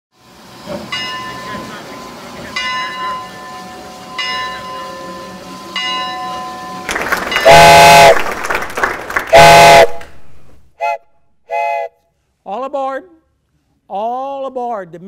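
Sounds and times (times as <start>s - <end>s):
locomotive bell ringing: 0.8s - 8.0s.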